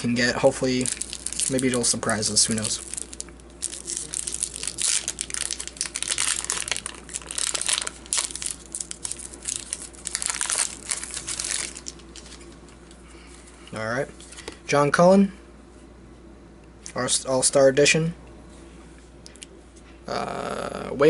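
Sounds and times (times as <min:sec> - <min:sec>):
wrapper crinkling: 0:00.8 - 0:12.9.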